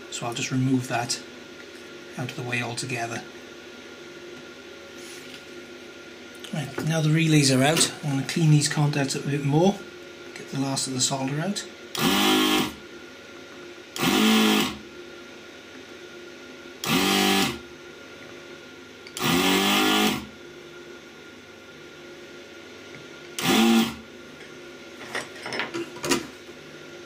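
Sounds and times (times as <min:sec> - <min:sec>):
vacuum pump whirring: 0:06.1 - 0:27.0.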